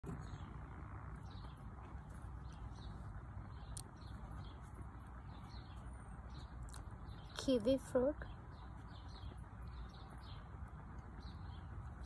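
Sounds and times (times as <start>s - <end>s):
low rumble: 0.0s - 7.4s
faint bird chirps: 0.0s - 12.0s.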